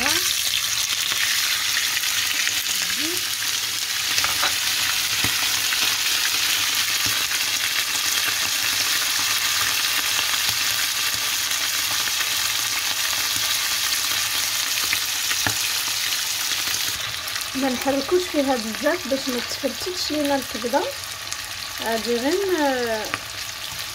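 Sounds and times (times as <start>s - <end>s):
liver sizzling in hot oil: 0.0s - 23.9s.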